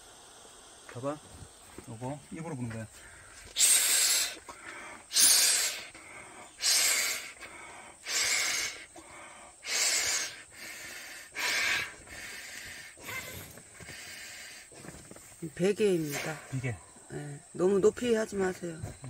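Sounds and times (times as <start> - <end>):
strong exhalations into a valve: 2.9 - 15.0, 16.0 - 17.4.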